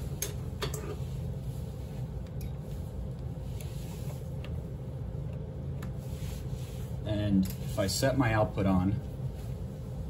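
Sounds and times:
low background hum: 0:00.0 - 0:10.0.

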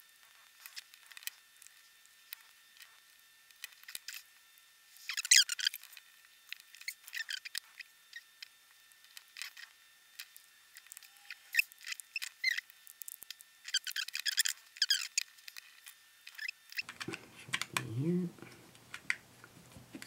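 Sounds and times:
plastic case clicking and squeaking: 0:05.0 - 0:06.0, 0:09.2 - 0:15.6, 0:16.3 - 0:17.8.

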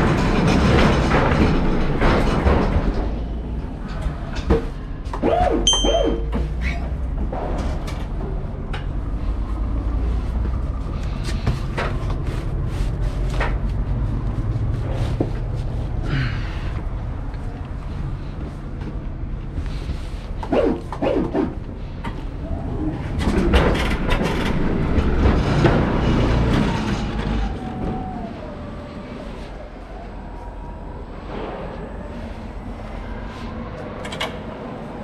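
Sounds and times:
pallet truck rattling over dock plate: 0:00.0 - 0:08.6, 0:23.0 - 0:28.7
clicks knocks and squeaks: 0:05.1 - 0:08.0.

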